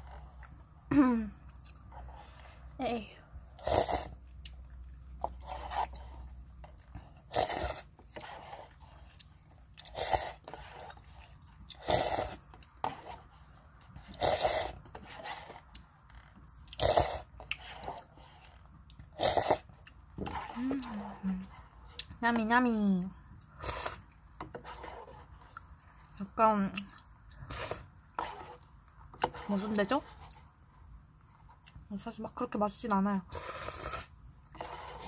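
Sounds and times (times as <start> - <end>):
loud slurping: 3.5 - 4.2, 7.2 - 9.1, 9.8 - 13.3, 14.0 - 15.7, 16.7 - 21.6, 23.5 - 25.5, 33.3 - 35.0.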